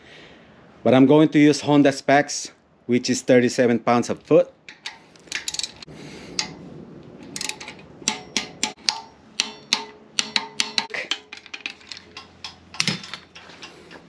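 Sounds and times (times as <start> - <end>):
wrench ratchet clicking: 4.7 - 6.6, 7.4 - 13.9.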